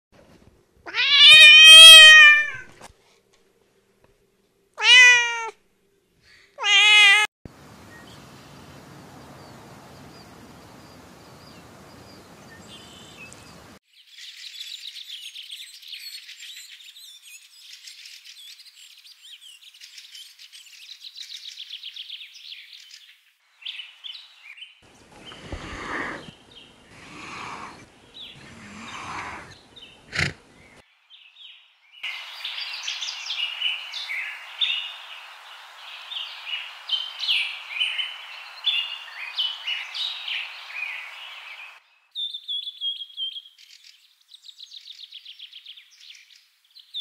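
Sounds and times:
cat meowing: 0:00.9 - 0:02.7, 0:04.8 - 0:05.6, 0:06.6 - 0:07.3
faint hiss: 0:07.5 - 0:13.8, 0:23.6 - 0:30.8, 0:32.0 - 0:41.8
small birds twittering: 0:07.6 - 0:47.0.

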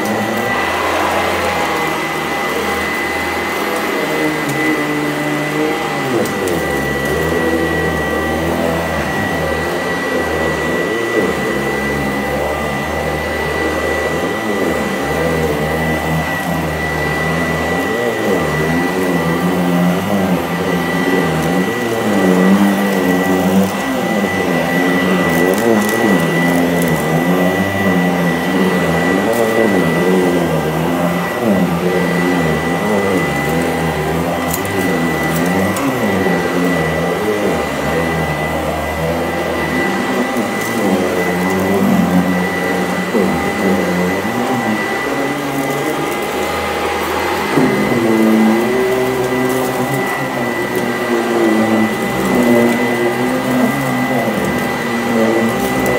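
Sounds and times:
upright vacuum whining: 0:00.0 - 0:55.9.

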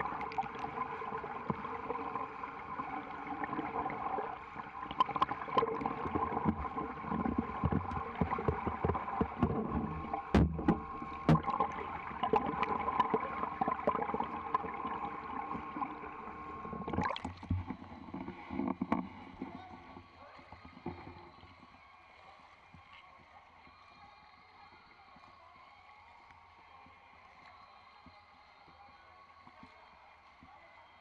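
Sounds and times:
steady hum: 0:00.0 - 0:20.0
muffled underwater splashing: 0:00.0 - 0:21.7.

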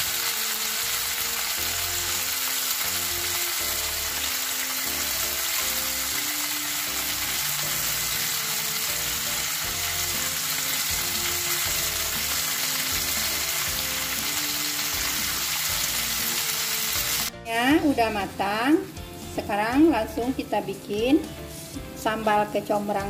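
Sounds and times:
fish sizzling in a pan: 0:00.0 - 0:17.3
background music: 0:00.0 - 0:23.0.

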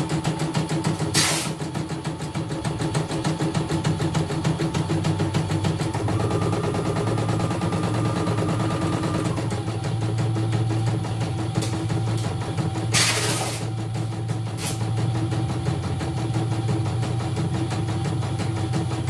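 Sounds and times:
embroidery machine stitching: 0:00.0 - 0:09.7
high machine whine: 0:01.6 - 0:19.0.

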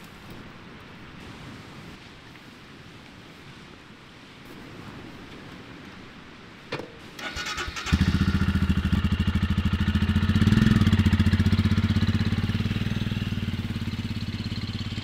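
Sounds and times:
electric starter turning: 0:07.2 - 0:08.2
motorcycle engine idling: 0:07.8 - 0:15.0.

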